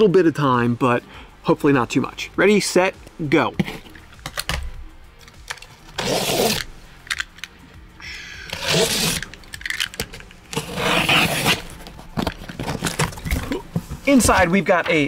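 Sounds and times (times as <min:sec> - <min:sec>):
utility knife slicing tape: 0:05.5 - 0:07.4, 0:08.5 - 0:13.3.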